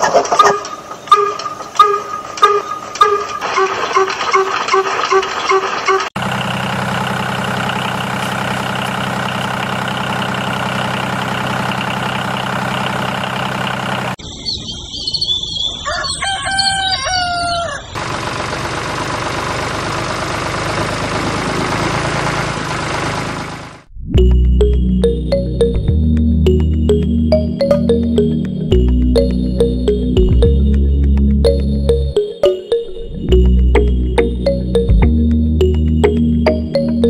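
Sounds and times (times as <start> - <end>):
rooster crowing: 15.8 - 18.0.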